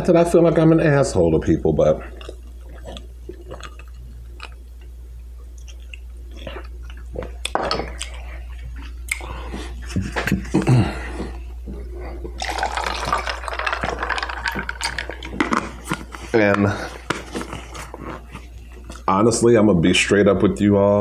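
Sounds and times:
steady low hum: 0.0 - 21.0
wet mouth clicks and chewing: 2.1 - 9.3, 12.4 - 16.2.

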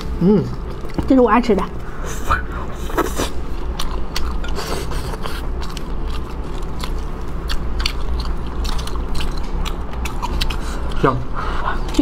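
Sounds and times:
close-up chewing: 2.4 - 12.0.

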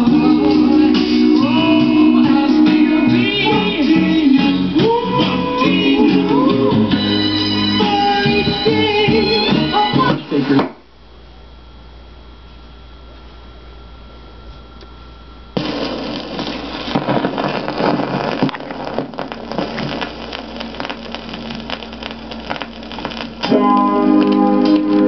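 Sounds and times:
music from record: 0.0 - 10.8, 15.6 - 25.0
record player hum and hiss: 0.0 - 25.0
vinyl crackle and pops: 15.6 - 25.0.

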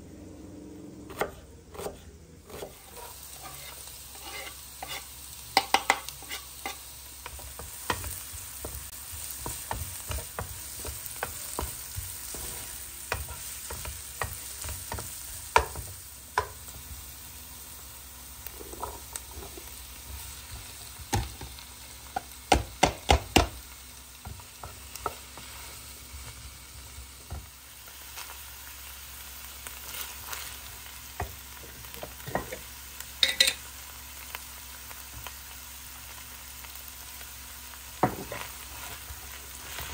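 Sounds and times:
vegetables sizzling in a pan: 0.3 - 39.9
wooden spoon stirring and scraping: 1.1 - 16.5, 18.4 - 21.0, 38.0 - 39.9.

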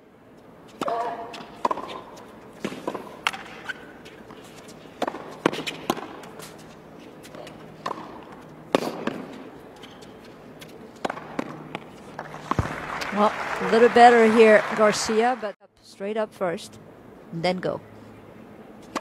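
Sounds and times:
tennis ball bouncing: 0.7 - 6.6, 7.2 - 13.0
racket hitting tennis ball: 0.7 - 12.9.

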